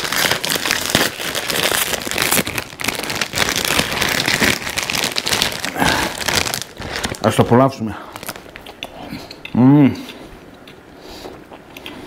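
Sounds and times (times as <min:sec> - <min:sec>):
plastic wrapper crinkling: 0:00.0 - 0:08.9.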